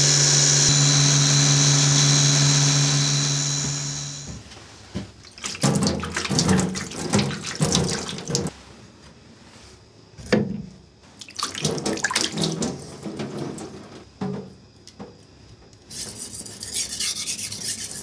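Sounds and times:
hand splashing water: 5.2 - 8.5, 11.2 - 12.7.

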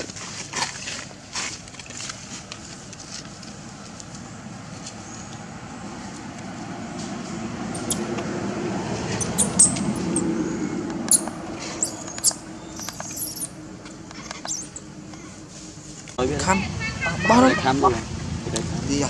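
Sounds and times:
monkey infant squeaking: 7.8 - 8.1, 9.1 - 10.3, 11.1 - 13.6, 14.2 - 14.9.

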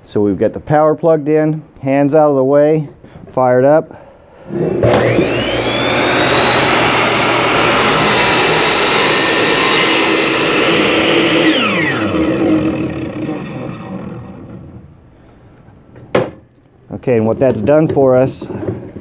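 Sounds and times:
saw blade cutting wood: 4.5 - 14.8
miter saw motor whine: 4.5 - 14.9.

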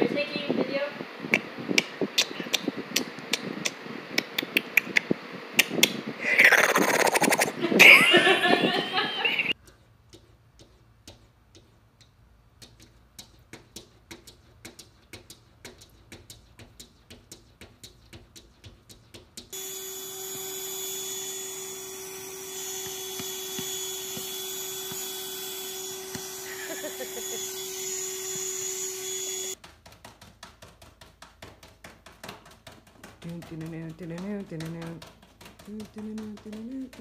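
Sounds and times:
handheld vacuum whirring: 19.6 - 29.6
cat paw tapping on window glass: 29.6 - 37.0.

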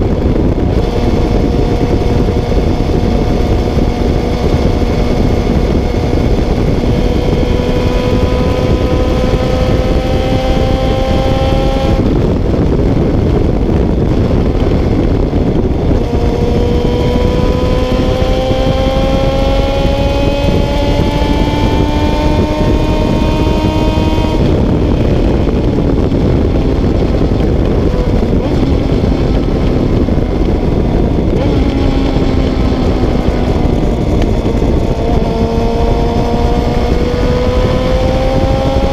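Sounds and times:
wind rush: 0.0 - 38.9
motorcycle engine pulling: 14.1 - 38.9.

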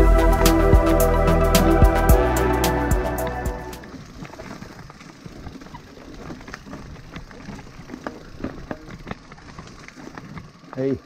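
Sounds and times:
bike tyres on loose stones: 3.8 - 11.0
bike clicking and knocking: 6.5 - 10.9.

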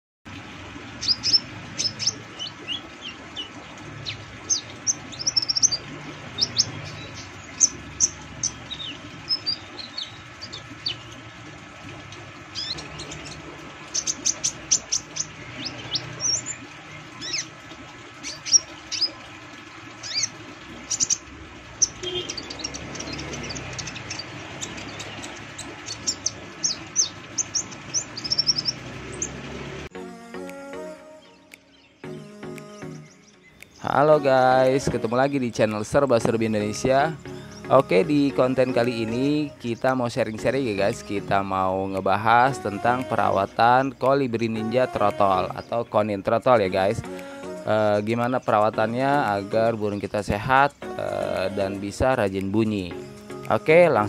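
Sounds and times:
bird chirping and twittering: 1.0 - 29.7.

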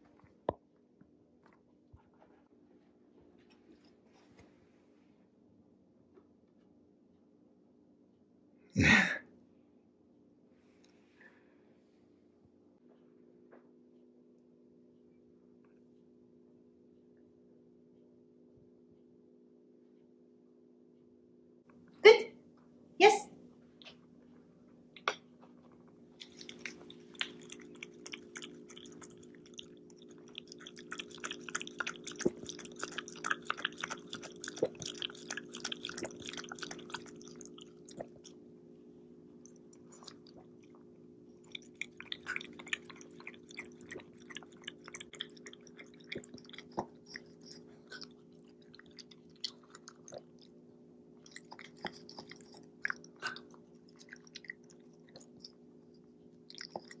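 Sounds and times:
dog chewing and crunching food: 25.4 - 38.4, 39.4 - 50.6, 51.2 - 57.0.

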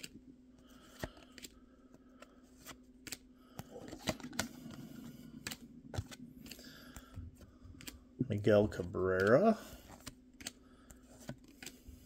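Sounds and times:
trading cards flipped by hand: 0.0 - 12.0.

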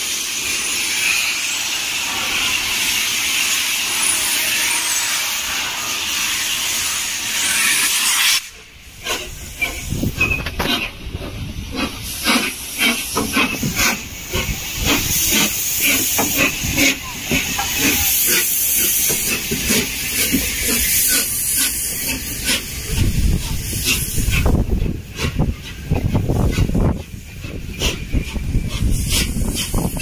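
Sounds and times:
loud steam hiss: 0.0 - 30.0
steam locomotive chuffing: 0.0 - 30.0.

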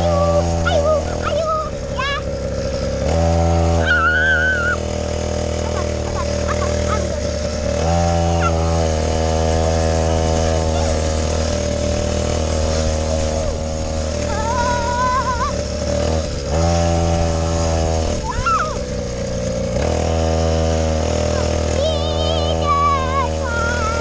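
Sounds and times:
small quad bike engine buzzing: 0.0 - 24.0.

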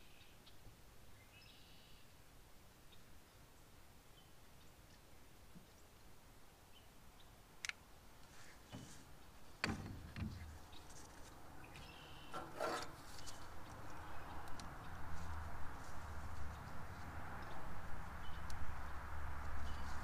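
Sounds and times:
brief rattling scrape: 12.3 - 13.4.

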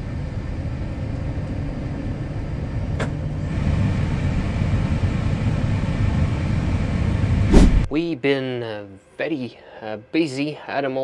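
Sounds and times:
jet engine rumbling: 0.0 - 8.1.

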